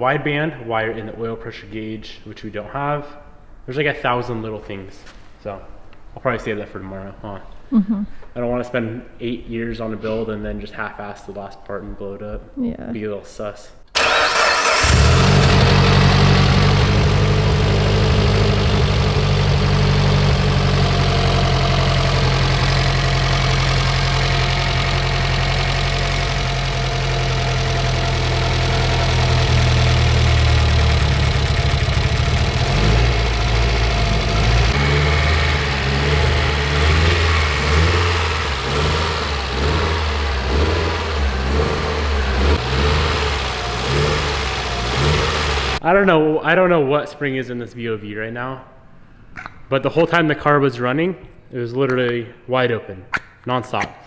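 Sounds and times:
car engine idling: 14.0 - 45.8.

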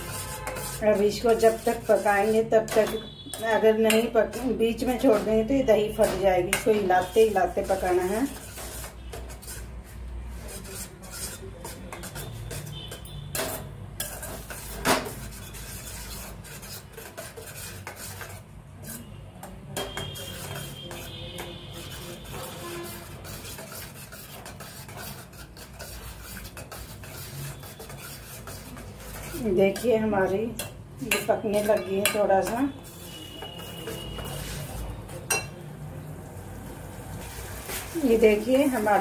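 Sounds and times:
spoon stirring and scraping pot: 0.0 - 35.6, 37.2 - 39.0
spoon clinking against pot: 2.7 - 5.3, 19.4 - 21.9, 29.7 - 34.4, 35.3 - 35.6.

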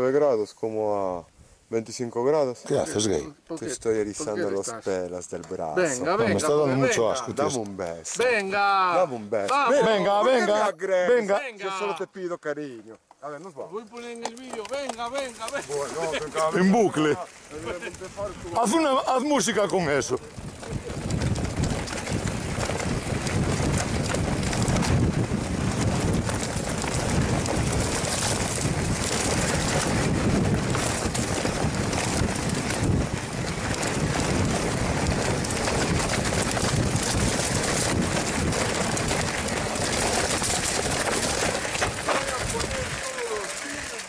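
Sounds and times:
tyre rumble over dirt and stones: 13.3 - 44.0
wind on microphone: 19.8 - 43.0.

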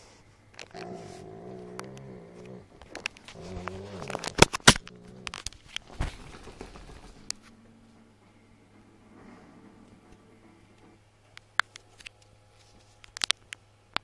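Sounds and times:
brief low moan: 0.7 - 5.4.

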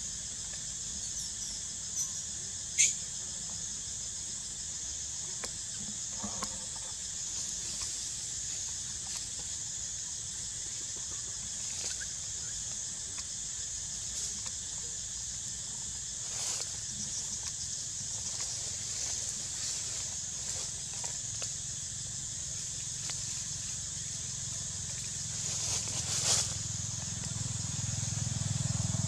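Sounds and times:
high-pitched insect chorus: 0.0 - 29.0.

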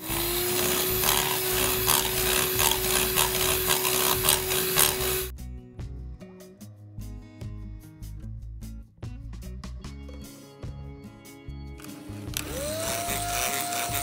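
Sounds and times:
electric hand mixer running: 0.0 - 5.3, 11.8 - 14.0
background music: 0.1 - 14.0.

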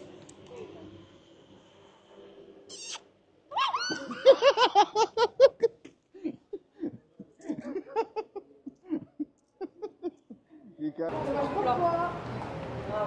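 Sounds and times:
person laughing hard: 3.6 - 10.4.

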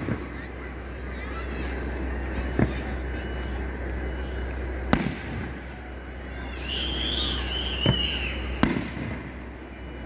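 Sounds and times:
firework bangs: 0.0 - 0.7, 2.4 - 3.1, 4.1 - 9.7
firework whistling: 0.0 - 10.0.

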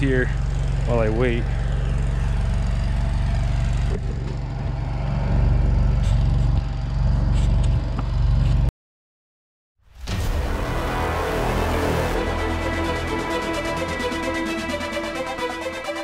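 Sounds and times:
engine droning: 0.0 - 8.7, 10.6 - 16.0.

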